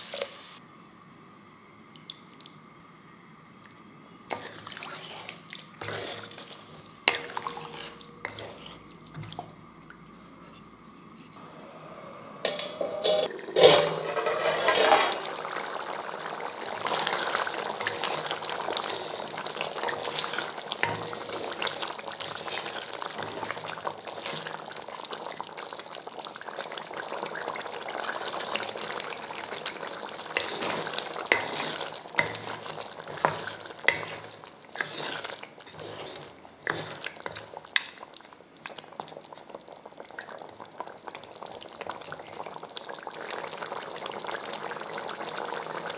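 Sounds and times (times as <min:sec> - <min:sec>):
gravy simmering and bubbling: 0:03.5 - 0:45.9
spatula stirring: 0:04.3 - 0:09.4, 0:13.0 - 0:15.3, 0:16.7 - 0:24.6, 0:28.0 - 0:38.0
metal lid clattering off pot: 0:12.4 - 0:15.3.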